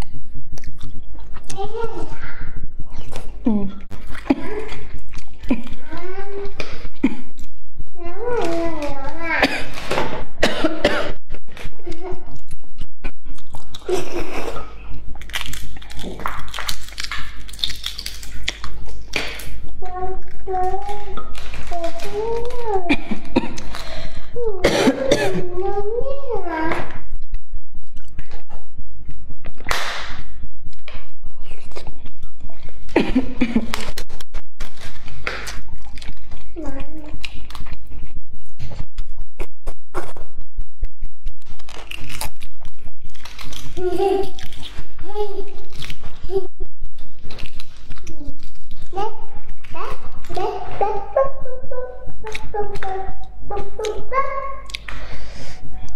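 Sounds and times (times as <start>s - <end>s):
mouth chewing sounds: 0.0s - 5.9s, 11.3s - 22.6s, 33.6s - 55.9s
chewing mouth sounds: 12.3s - 20.5s, 41.0s - 46.2s
eggshell cracking: 15.1s - 19.6s.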